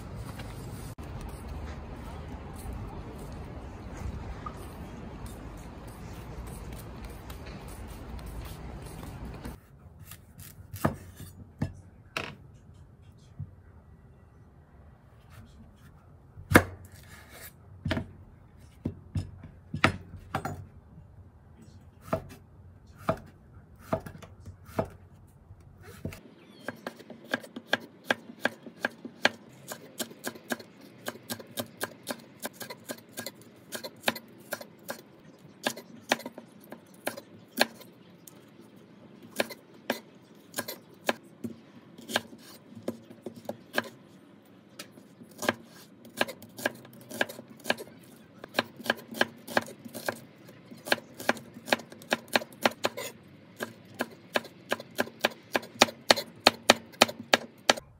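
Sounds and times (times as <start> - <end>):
knife chopping on wooden board: 9.4 - 11.7, 23.0 - 25.0, 45.3 - 50.2, 50.8 - 57.8.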